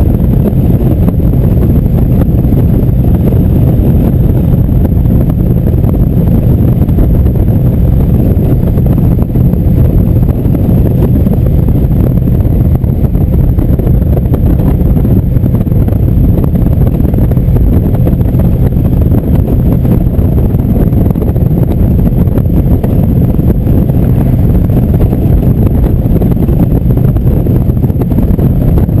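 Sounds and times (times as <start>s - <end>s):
motorcycle engine drone: 0.0s - 29.0s
road noise: 0.0s - 29.0s
wind rumble on microphone: 0.0s - 29.0s.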